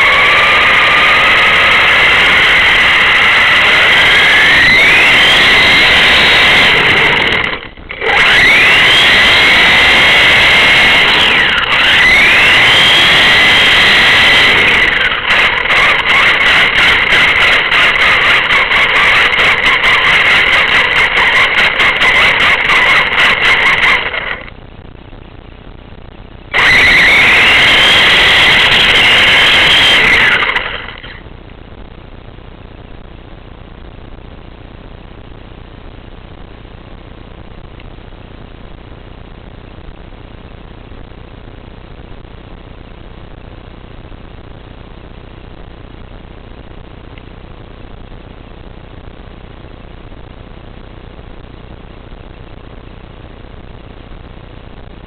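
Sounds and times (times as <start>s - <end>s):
loud high whine: 0.0s - 55.0s
car engine running: 5.0s - 24.5s
low steady hiss: 24.5s - 27.0s, 31.2s - 55.0s.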